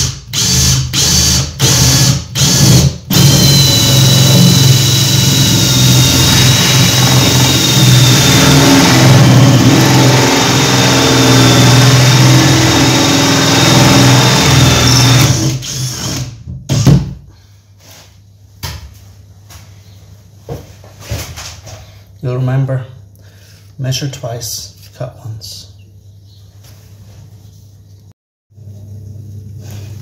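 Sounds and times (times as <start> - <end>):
drill cutting with hole saw: 0.0 - 16.9.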